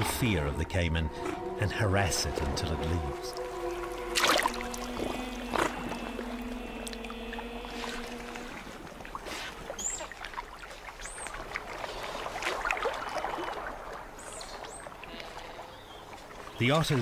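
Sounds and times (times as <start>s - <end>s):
background music chord: 0.0s - 8.7s
water splashing and churning: 0.0s - 17.0s.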